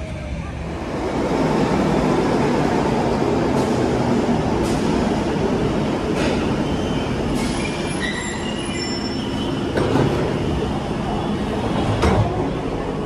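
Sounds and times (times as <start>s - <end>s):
train rumbling: 0.0s - 13.0s
train brakes squealing: 6.2s - 11.3s.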